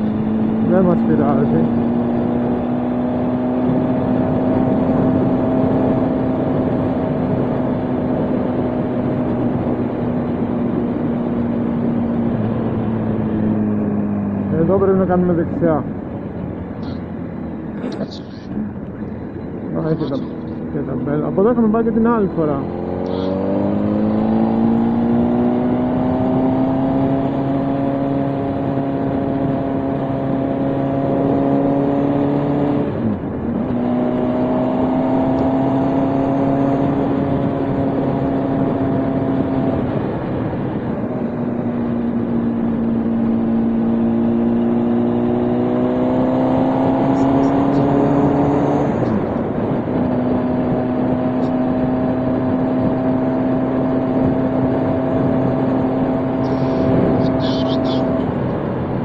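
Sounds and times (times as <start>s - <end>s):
motorcycle engine: 0.0s - 59.0s
wind rushing: 56.4s - 57.4s.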